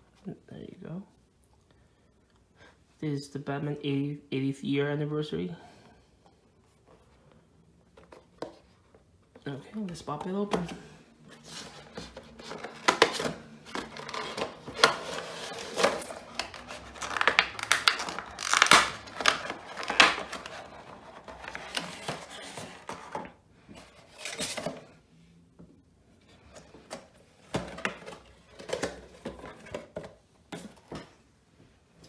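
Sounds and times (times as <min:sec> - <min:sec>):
plastic packaging crinkling: 0:12.0 - 0:23.2.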